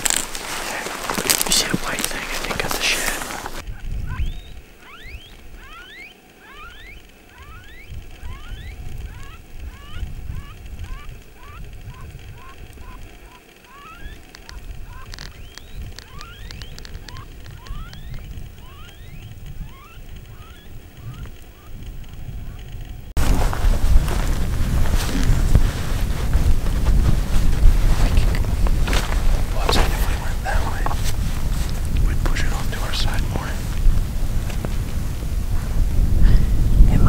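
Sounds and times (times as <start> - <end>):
wind rumble on microphone: 0.0 - 5.8, 6.7 - 37.0
sharp clicks: 1.2 - 23.1
predator call squeals: 2.8 - 21.8.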